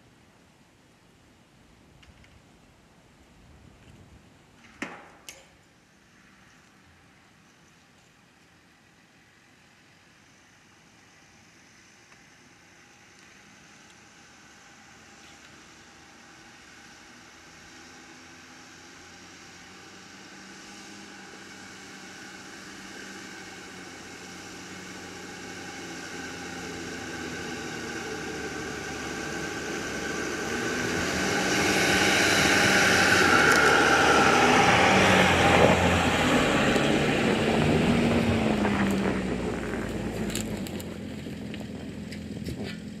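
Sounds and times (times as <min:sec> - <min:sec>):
van driving past on snow: 0:12.6 - 0:43.0.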